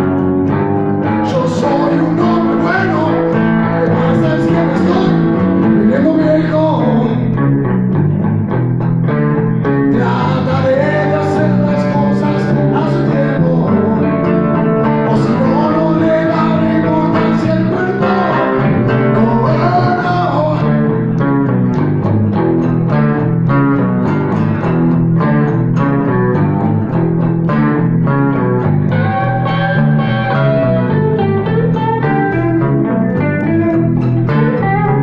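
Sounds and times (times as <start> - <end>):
electric bass: 0.0 - 35.0
second guitar: 0.0 - 35.0
strummed acoustic guitar: 0.0 - 35.0
person singing: 1.0 - 7.4, 9.9 - 21.1.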